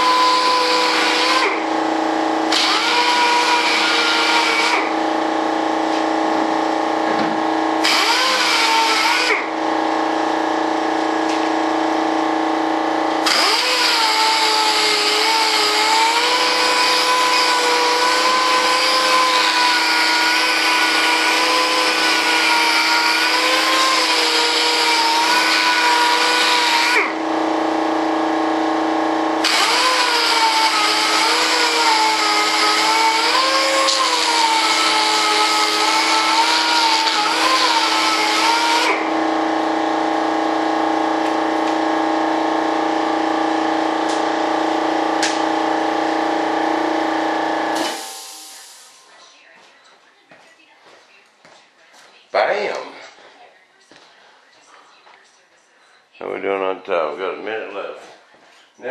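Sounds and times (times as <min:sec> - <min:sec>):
orbital sander motor: 0:00.0 - 0:05.3, 0:07.4 - 0:11.1, 0:11.9 - 0:39.3.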